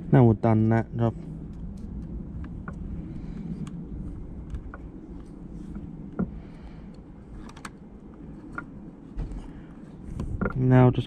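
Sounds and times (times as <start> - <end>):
low background rumble: 0.0 - 11.0
light clicks and taps of plastic: 10.1 - 10.6.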